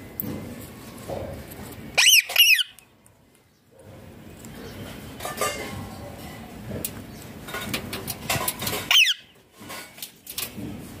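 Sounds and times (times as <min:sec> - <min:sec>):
parakeet squeak: 0:02.0 - 0:02.8, 0:08.9 - 0:09.3.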